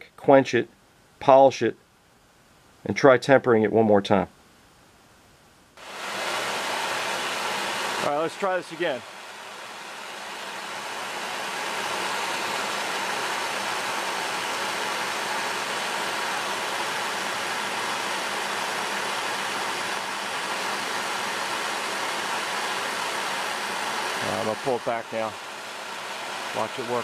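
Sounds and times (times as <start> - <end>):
torch flame hissing: 5.8 - 27.0.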